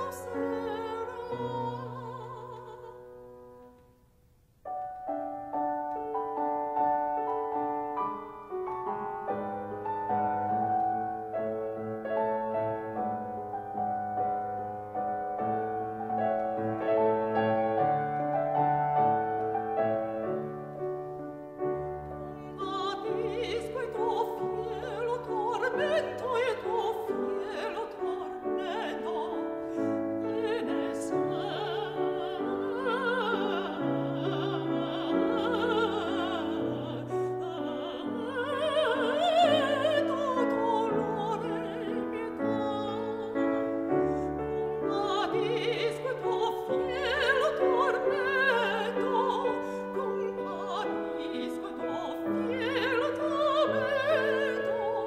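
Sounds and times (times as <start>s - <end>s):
woman singing operatically: 0.0s - 3.2s, 22.2s - 55.0s
classical piano accompaniment: 0.0s - 3.9s, 4.6s - 55.0s.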